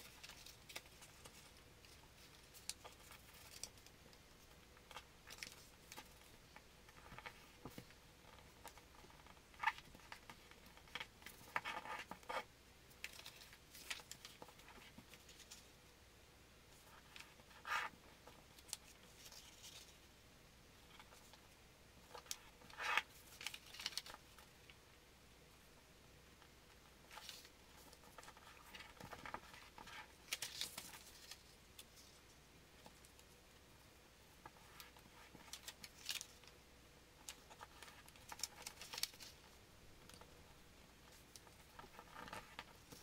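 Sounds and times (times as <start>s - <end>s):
paper rustling and crinkling: 0.0s - 3.9s, 22.1s - 24.4s, 27.1s - 32.2s, 34.5s - 36.5s, 37.2s - 40.3s.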